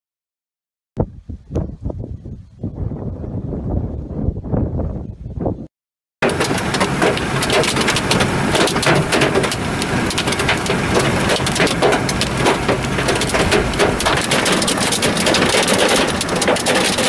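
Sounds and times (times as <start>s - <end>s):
car rumble: 6.2s - 17.0s
hail pelting a vehicle roof: 6.2s - 17.0s.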